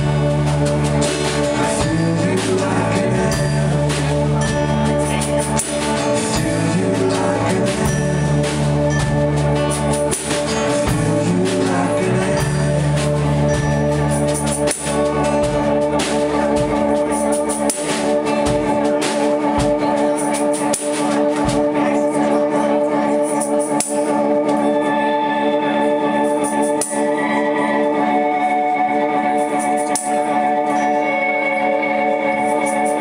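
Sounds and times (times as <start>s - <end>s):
drum kit with cymbals: 0.0s - 22.4s
electric bass: 0.0s - 23.3s
strummed acoustic guitar: 0.0s - 24.7s
held guitar chords: 0.0s - 33.0s.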